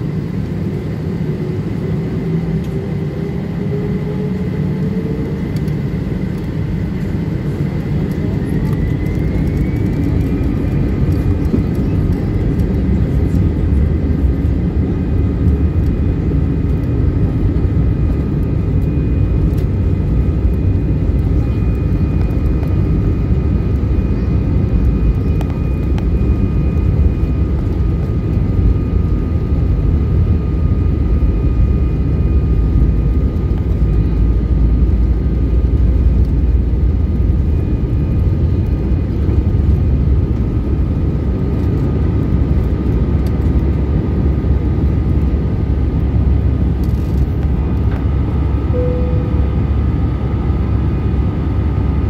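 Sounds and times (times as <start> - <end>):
faint thin engine whine: 0.0 - 52.0
jet engines deep rumble: 0.0 - 52.0.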